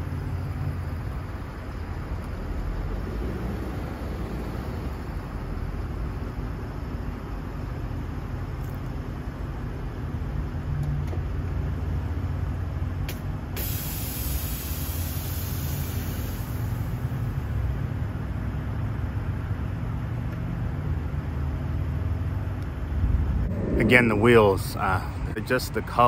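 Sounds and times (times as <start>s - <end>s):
air venting hiss: 13.6s - 17.2s.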